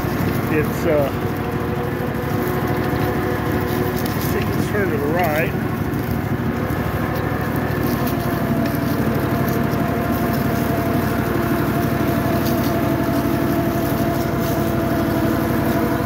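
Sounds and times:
tractor engine running: 0.0 - 16.0.

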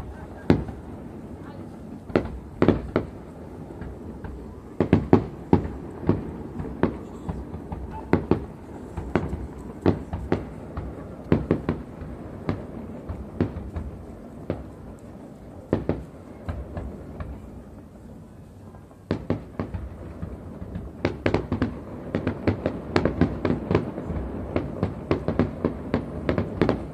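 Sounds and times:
fireworks bangs: 0.0 - 26.9.

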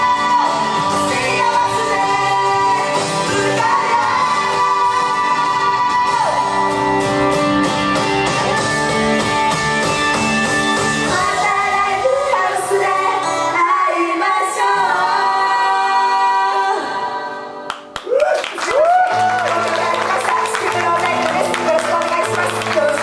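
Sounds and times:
women singing pop song: 0.0 - 7.1, 11.0 - 17.7
backing music: 0.0 - 23.0.

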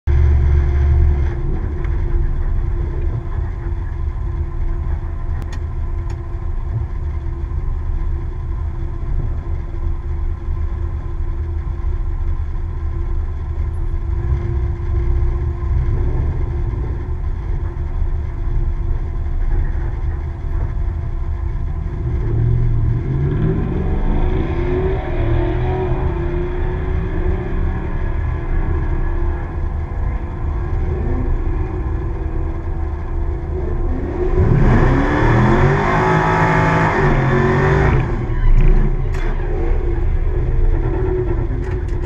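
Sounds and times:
car engine idling: 0.0 - 42.0.

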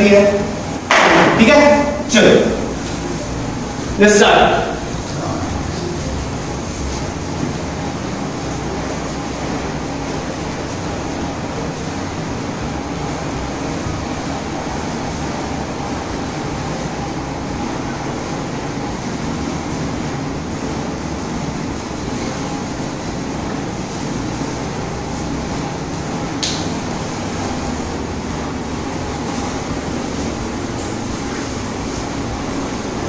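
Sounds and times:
background hum and hiss: 0.0 - 33.0
sharp click: 26.4 - 27.0.

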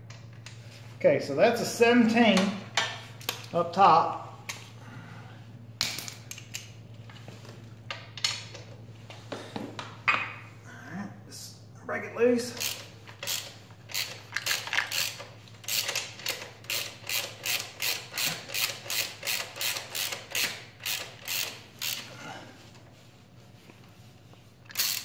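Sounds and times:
ratchet wrench clicking: 12.5 - 22.1, 24.7 - 25.0.

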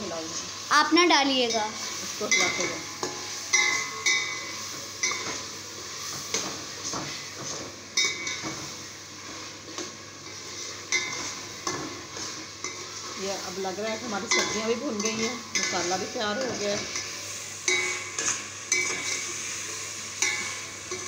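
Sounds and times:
food sizzling in oil: 0.0 - 21.0
metal spoon clinking against pot: 17.7 - 19.3.

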